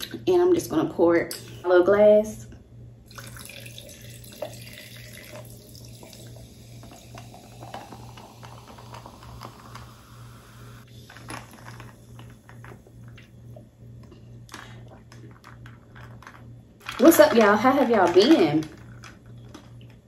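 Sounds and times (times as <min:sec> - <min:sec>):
soda pouring into glass: 0:03.1 - 0:10.8.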